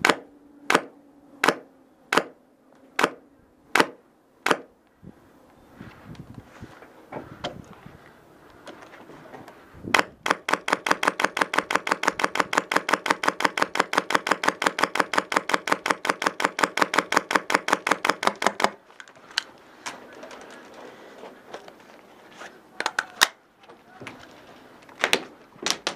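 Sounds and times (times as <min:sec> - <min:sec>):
rapid mechanical clicking: 0:10.0 - 0:18.8.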